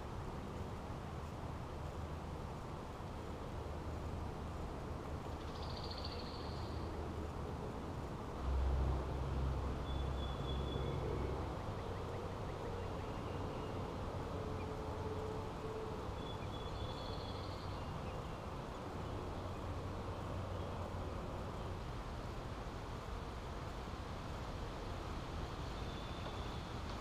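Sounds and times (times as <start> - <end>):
faint bird chirps: 5.4 - 6.9, 9.8 - 13.9, 16.2 - 18.4.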